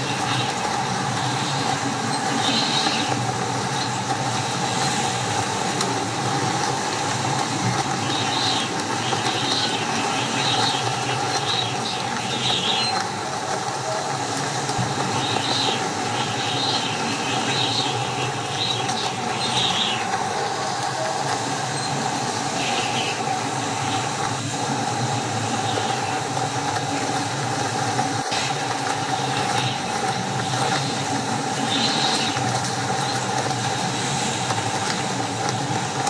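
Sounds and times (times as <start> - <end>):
constant whistling tone: 0.0 - 5.8, 7.4 - 35.8.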